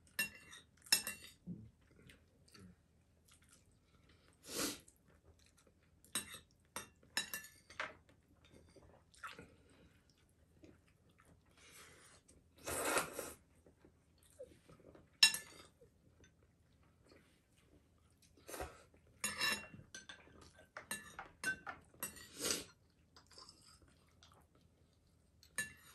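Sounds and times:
chopsticks clinking on dishes: 19.3 - 20.2, 20.8 - 22.3.

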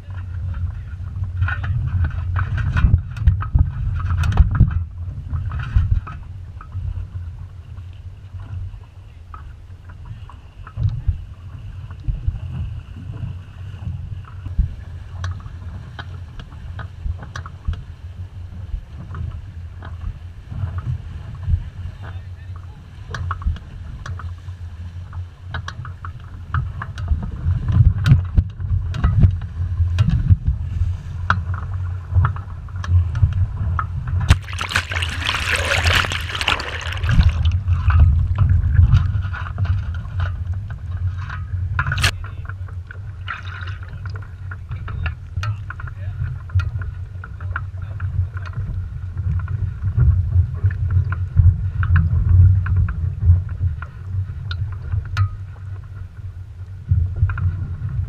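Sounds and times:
wind buffeting microphone: 0.0 - 7.8, 32.4 - 42.2
water splashing: 34.3 - 38.9, 41.9 - 42.1.

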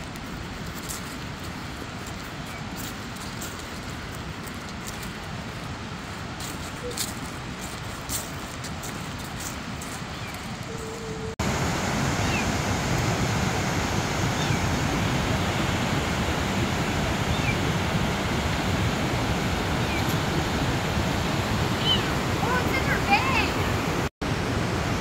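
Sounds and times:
footsteps on dirt trail: 0.0 - 11.4
waterfall rushing: 0.0 - 25.0.

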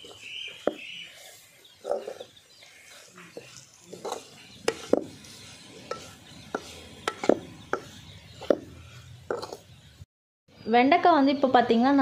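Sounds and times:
metal spoon scraping a pan: 0.0 - 9.9.

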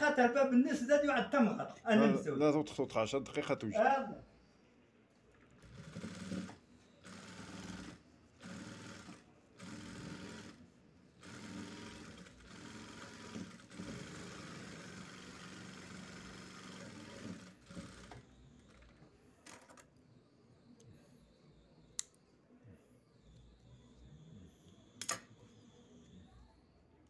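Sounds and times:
sewing machine stitching: 5.6 - 19.9.

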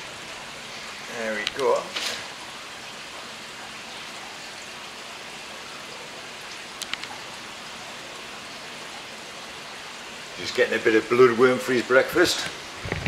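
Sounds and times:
running and splashing water: 0.0 - 13.0
light clicks: 6.8 - 7.2.

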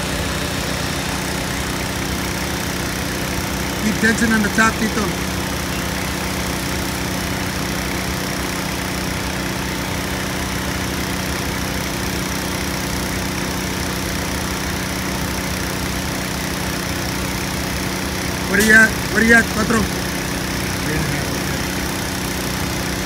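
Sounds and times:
engines idling: 0.0 - 23.0.

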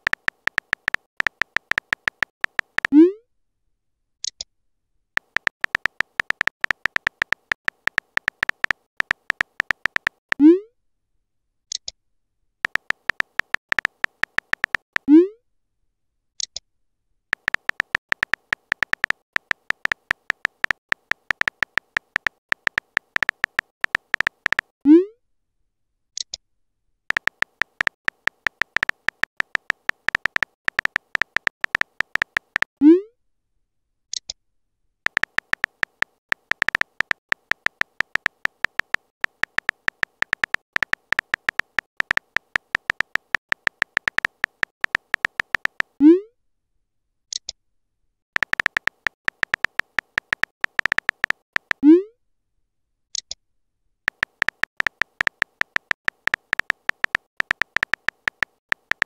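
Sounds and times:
rapid key clicks: 0.0 - 3.0, 5.2 - 10.4, 12.6 - 15.1, 17.3 - 24.8, 27.1 - 32.8, 35.1 - 46.0, 48.4 - 51.8, 54.1 - 59.0.

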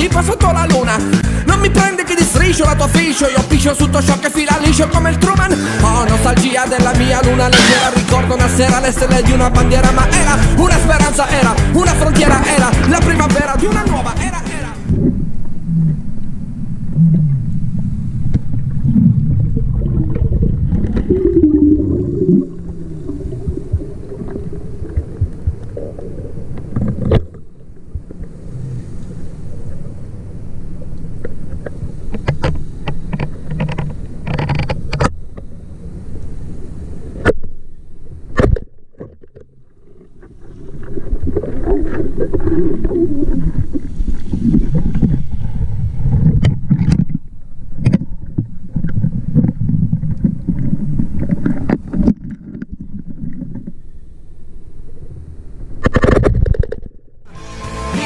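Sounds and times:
underwater rushing water: 7.8 - 34.7, 39.2 - 56.9
sharp clicks and knocks: 31.6 - 35.4.

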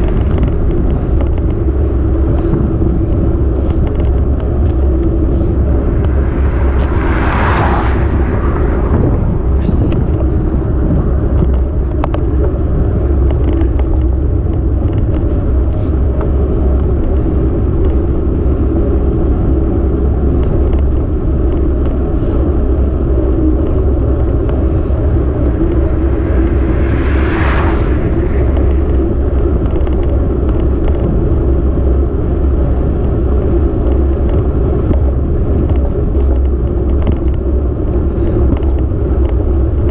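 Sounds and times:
road noise: 0.0 - 39.9
vehicles passing whoosh: 0.0 - 39.9
wind buffeting microphone: 0.0 - 39.9.

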